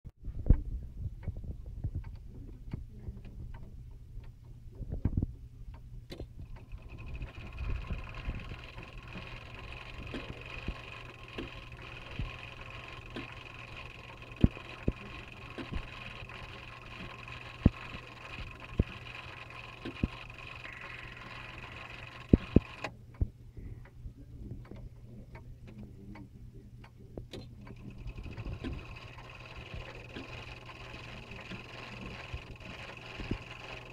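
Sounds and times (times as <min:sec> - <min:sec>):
low hum: 0:00.2 - 0:33.9
clock mechanism clicking and rattling: 0:05.0 - 0:23.0, 0:26.8 - 0:33.9
sharp clicks from mechanism: 0:06.1 - 0:23.2, 0:26.8 - 0:33.9
steady high whine: 0:06.4 - 0:33.9.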